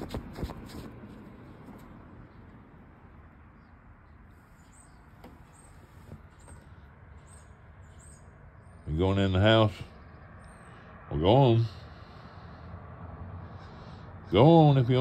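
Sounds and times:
high bird chirps: 4.5 - 8.9.

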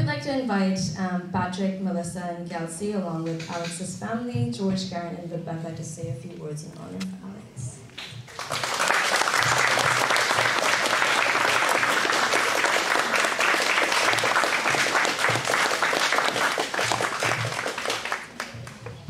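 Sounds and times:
audience applauding: 8.0 - 19.0.

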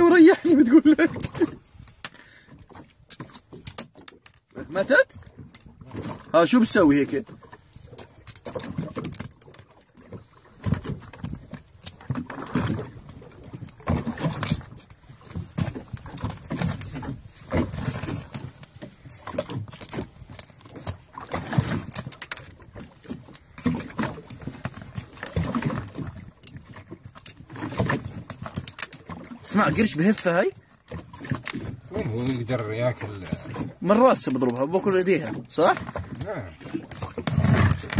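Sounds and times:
barnacles clicking and scraping off shell: 17.6 - 29.4.

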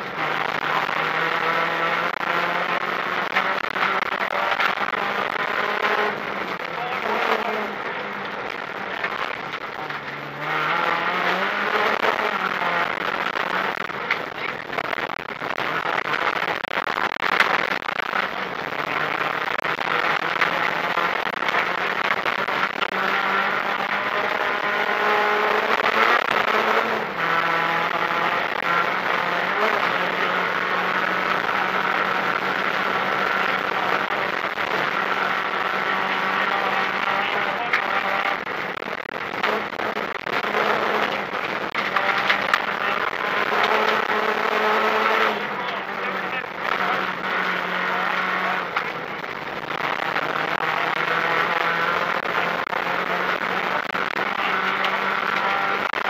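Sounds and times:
car engine at full throttle: 0.0 - 56.0
gravel knocks and clicks: 3.2 - 10.5, 11.2 - 24.1, 36.4 - 50.8.

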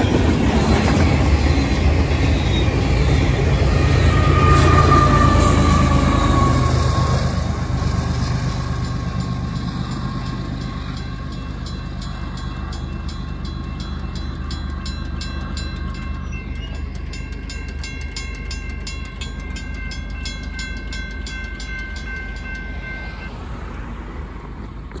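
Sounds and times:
freight train rumbling: 0.0 - 25.0
mechanical crossing bell ringing: 8.5 - 23.4
electronic crossing bell ringing: 8.5 - 24.0.

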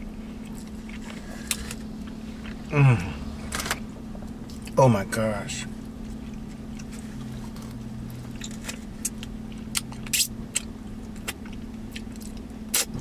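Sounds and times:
idling vehicle hum: 0.0 - 13.0
wet chewing clicks and smacks: 6.0 - 13.0.

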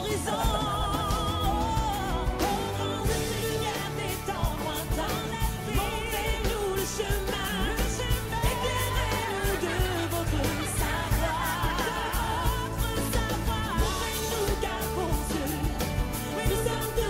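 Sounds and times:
band with drums: 0.0 - 17.0
woman singing with vibrato: 0.0 - 17.0.

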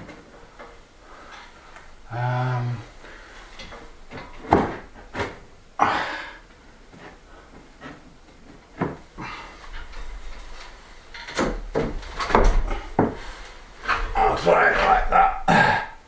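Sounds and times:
wood scraping on wood: 7.0 - 15.6
wooden knocks: 8.8 - 15.0.

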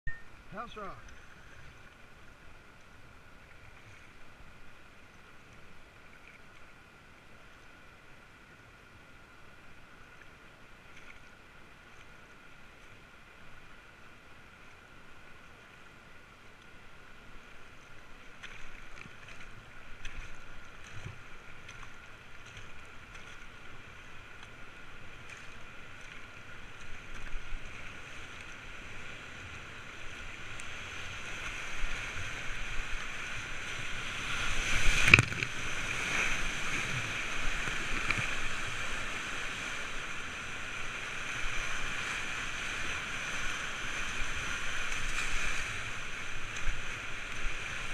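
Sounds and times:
rushing whitewater: 0.1 - 47.9
paddle splashes: 17.3 - 47.9.

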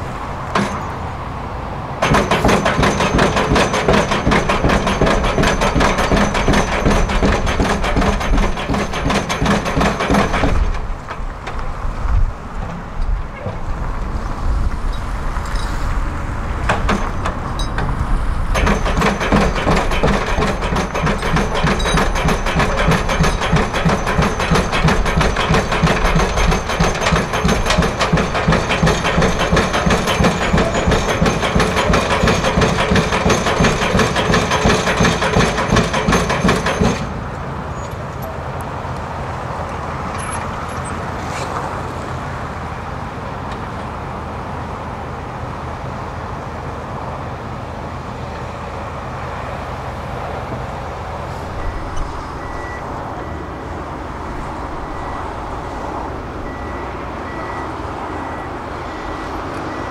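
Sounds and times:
engine running: 0.0 - 44.4
pile driver hammer blows: 0.5 - 1.0, 2.0 - 11.6, 16.6 - 38.3.

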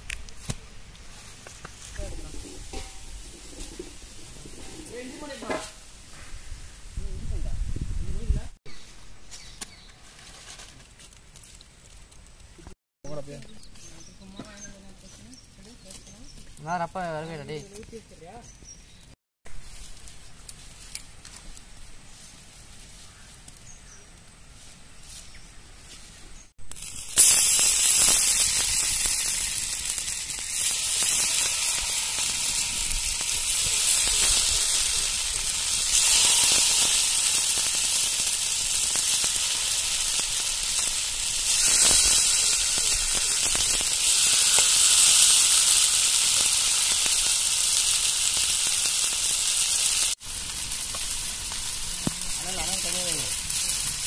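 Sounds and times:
fish sizzling in hot oil: 26.6 - 54.0.

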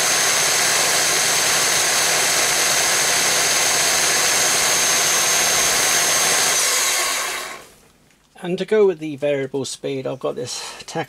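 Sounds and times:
electric drill running: 0.0 - 7.7.

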